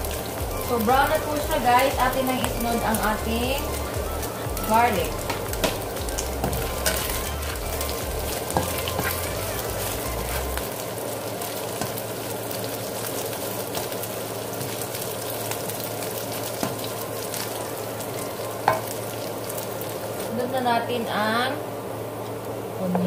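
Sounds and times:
low hum: 0.0s - 11.2s
garlic sizzling in oil: 0.0s - 23.0s.

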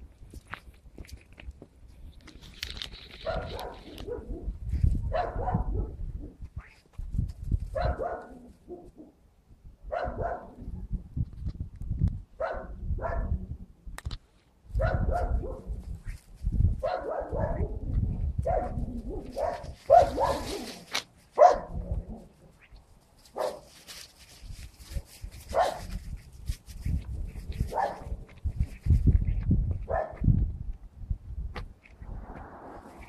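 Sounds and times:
small dog barking: 3.2s - 4.5s, 5.1s - 6.0s, 7.7s - 9.1s, 9.9s - 10.6s, 12.4s - 13.4s, 14.8s - 15.7s, 16.8s - 20.7s, 21.4s - 21.8s, 23.3s - 23.7s, 25.5s - 25.9s, 27.7s - 28.2s, 29.9s - 30.2s
low rumbling microphone noise: 25.5s - 33.0s.

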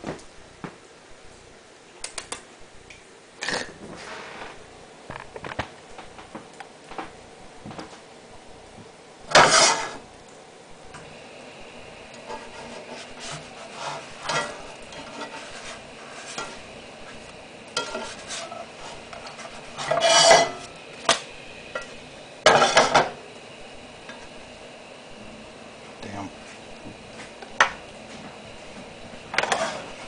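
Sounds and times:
pancake sizzling faintly: 8.6s - 30.0s
spatula scraping a frying pan: 9.3s - 10.0s, 12.1s - 23.2s, 29.3s - 30.0s.

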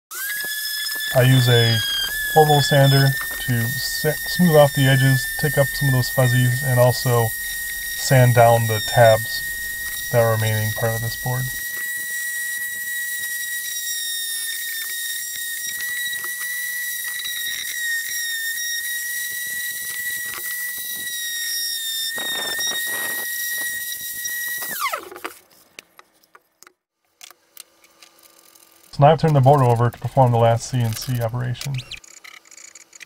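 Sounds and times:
motor spinning down: 0.1s - 25.3s
orbital sander whining: 0.2s - 25.2s.

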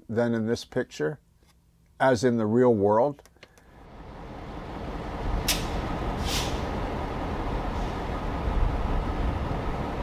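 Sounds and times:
diesel locomotive rumbling: 3.8s - 10.0s
short hisses: 5.5s - 6.8s.

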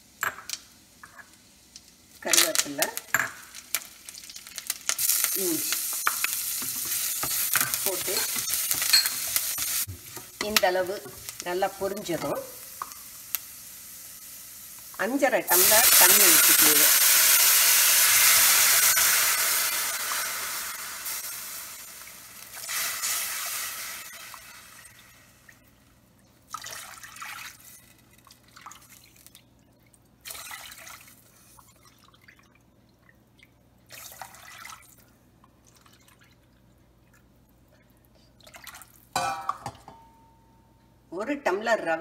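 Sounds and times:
water hissing in hot oil: 3.8s - 10.3s, 11.2s - 25.6s.

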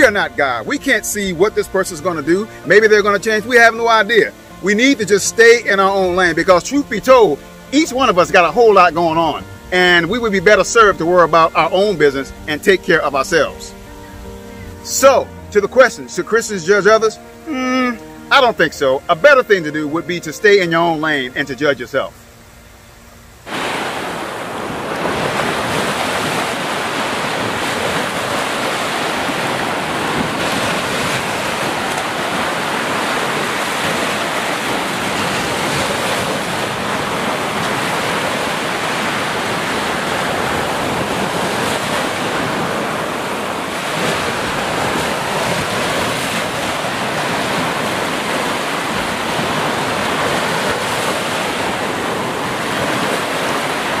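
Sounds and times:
small waves breaking on beach: 23.5s - 54.0s.

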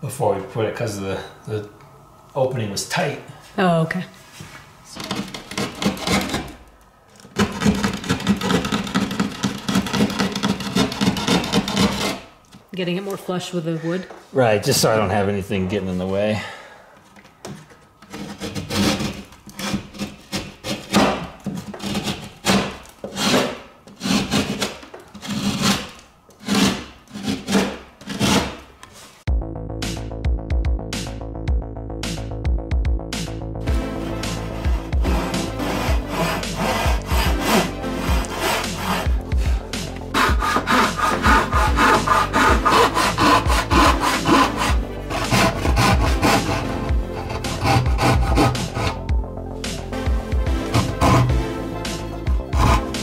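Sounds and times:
rasp scraping wood: 4.9s - 6.6s, 7.2s - 12.3s, 18.0s - 29.0s, 33.6s - 49.1s, 50.5s - 53.0s
handsaw cutting wood: 5.0s - 6.6s, 7.4s - 12.3s, 18.1s - 28.7s, 33.7s - 49.1s, 50.5s - 53.0s
background music with steady beat: 29.3s - 53.0s.

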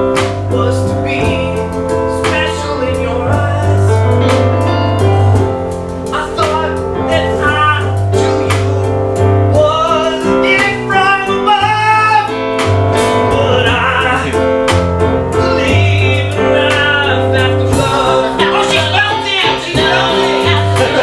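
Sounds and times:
keyboard playing: 0.0s - 21.0s
steady ticking beat: 0.0s - 21.0s
person singing: 15.3s - 21.0s.

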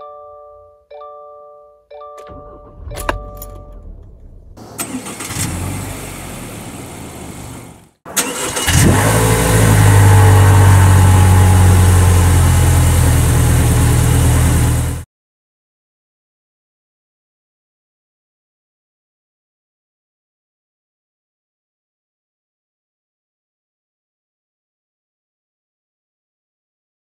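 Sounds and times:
dashboard chimes: 0.0s - 3.9s
car engine running: 2.3s - 15.0s.

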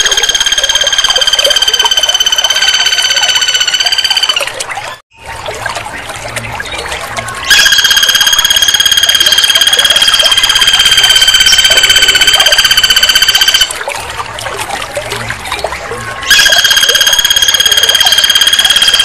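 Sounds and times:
woodpecker rattling trill: 0.0s - 4.6s, 7.5s - 13.7s, 16.2s - 19.0s.

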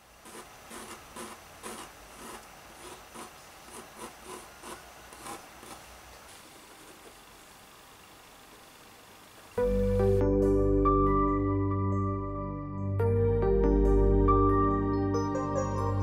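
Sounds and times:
pencil scratching on paper: 0.2s - 5.9s.

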